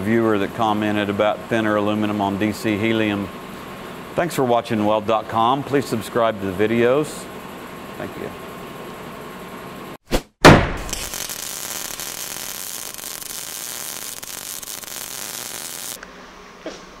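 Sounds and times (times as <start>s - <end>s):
loud impact: 10.4s - 12.0s
steady hiss: 10.9s - 16.0s.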